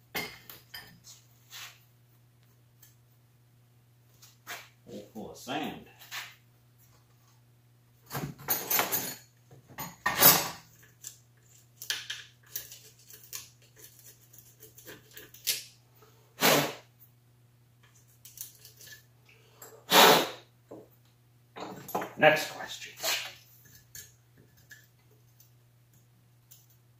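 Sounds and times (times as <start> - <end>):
metal tools clattering on workbench: 8.1 - 10.6, 21.6 - 22.2.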